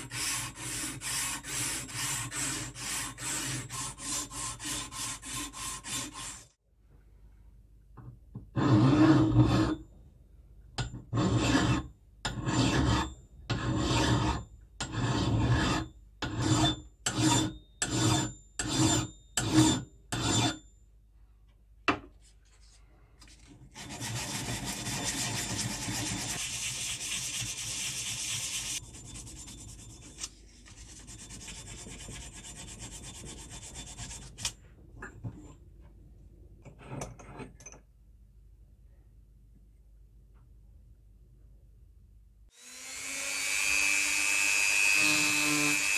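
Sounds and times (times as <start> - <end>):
file rasping on steel: 0.0 - 6.6, 8.5 - 9.8, 11.0 - 20.6, 23.7 - 34.6
rough rubbing noise: 23.8 - 34.4.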